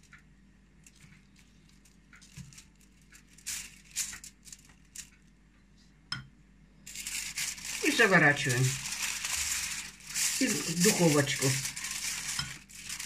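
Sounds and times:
foil crinkling: 0:00.9 - 0:05.1, 0:06.9 - 0:13.0
pastry brush dabbing: 0:06.9 - 0:13.0.

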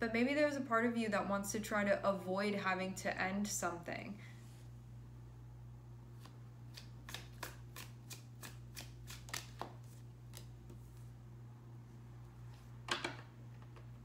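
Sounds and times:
cards being shuffled: 0:06.1 - 0:11.1.

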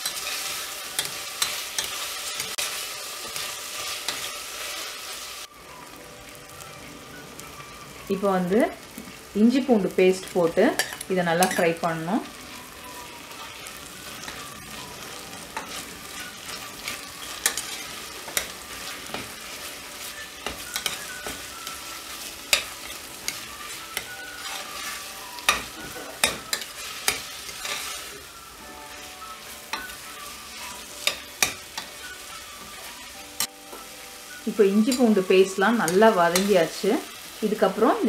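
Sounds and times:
spoon stirring and scraping pot: 0:00.0 - 0:04.8, 0:10.7 - 0:11.9, 0:15.5 - 0:28.1
food sizzling in oil: 0:00.0 - 0:38.0.

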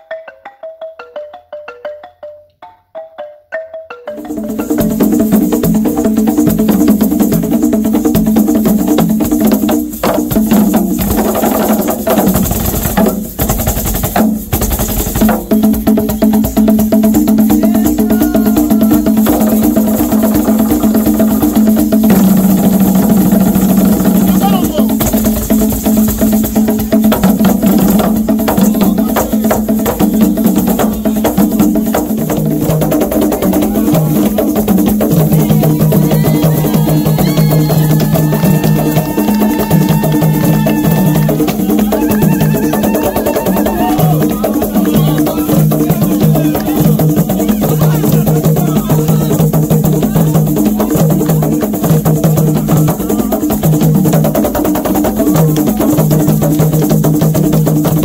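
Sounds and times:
hand drums playing dance rhythm: 0:00.0 - 0:58.0.

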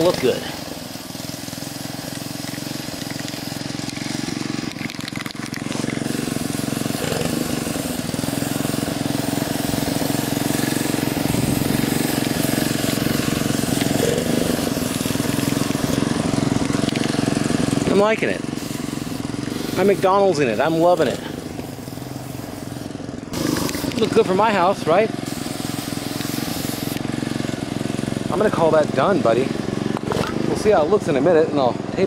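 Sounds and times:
aerosol spray can hissing: 0:00.0 - 0:27.6
low motor hum: 0:01.4 - 0:20.2.

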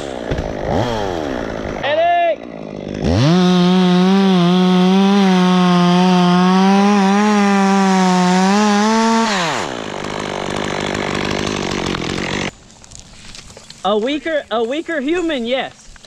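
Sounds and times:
chainsaw cutting wood: 0:00.0 - 0:12.6.

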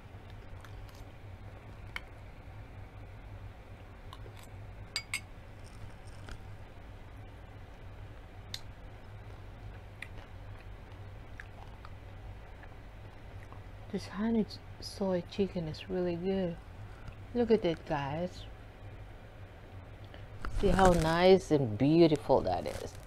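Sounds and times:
steady low hum: 0:00.0 - 0:23.0
chewing crunches: 0:00.3 - 0:01.1, 0:05.6 - 0:06.5, 0:09.2 - 0:13.6.

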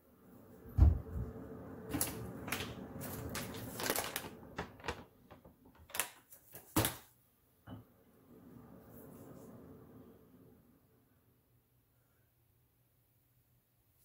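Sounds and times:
cupboard door thump: 0:00.8 - 0:01.1
plastic pouch crinkling: 0:01.9 - 0:06.8.

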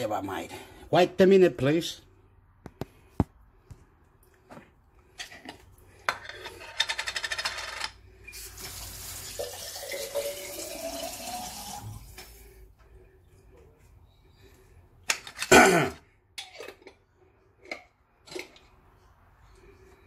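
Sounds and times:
water filling a vessel: 0:08.4 - 0:12.2.

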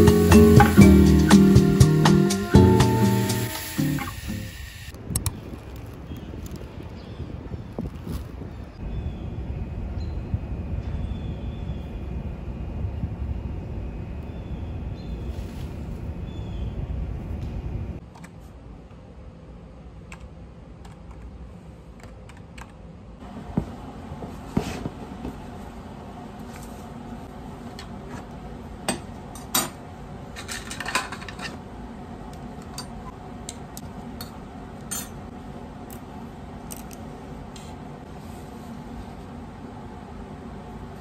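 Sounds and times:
metal tools clattering on benchtop: 0:30.4 - 0:31.6.

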